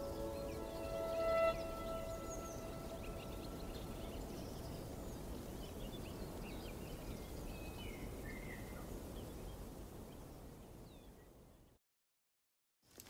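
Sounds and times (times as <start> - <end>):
birds chirping: 0.0 - 8.6.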